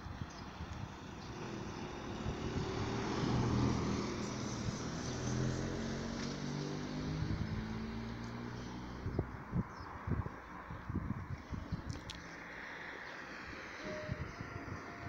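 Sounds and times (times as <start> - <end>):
vehicle driving past: 1.3 - 9.1.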